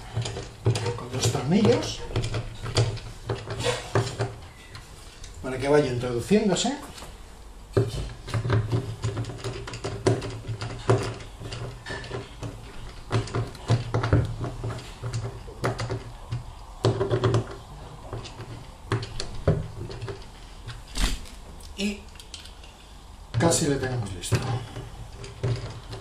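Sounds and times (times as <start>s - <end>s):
screwdriver clicking and scraping on metal: 0.0s - 5.4s, 7.8s - 20.9s.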